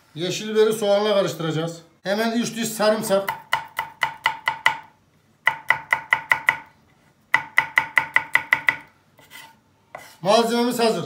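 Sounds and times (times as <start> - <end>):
knife chopping on wooden board: 3.2 - 4.9, 5.5 - 6.7, 7.3 - 10.2.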